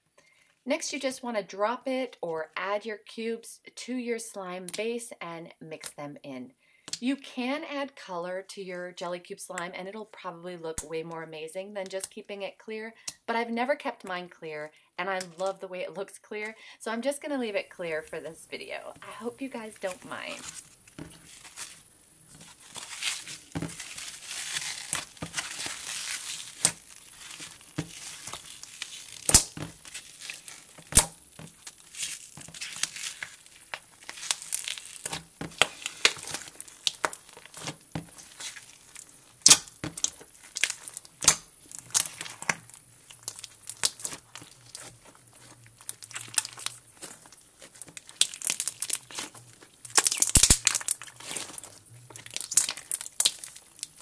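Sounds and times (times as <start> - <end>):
slime squelching by hand: 18.8 - 54.0
slime popping and clicking: 26.4 - 38.3, 38.9 - 44.9, 47.8 - 51.6, 52.2 - 54.0.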